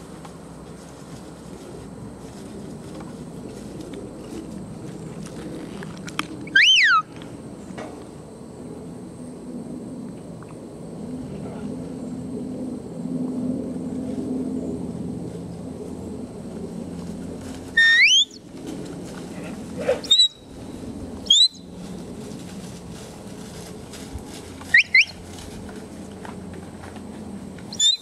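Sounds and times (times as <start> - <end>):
steady low rumble: 0.0 - 27.8
short rising whistles: 17.8 - 18.4, 21.3 - 21.6, 27.7 - 28.0.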